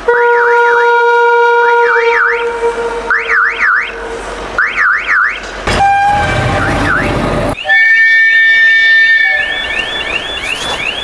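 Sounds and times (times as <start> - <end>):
steady warning horn tone: 0.1 - 11.0
electronic warbling siren: 4.6 - 9.9.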